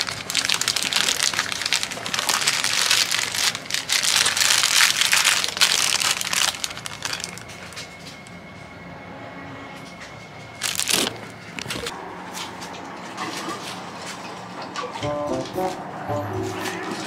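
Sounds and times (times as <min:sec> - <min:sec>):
plastic bag crinkling: 0:00.0 - 0:08.2, 0:10.6 - 0:11.9.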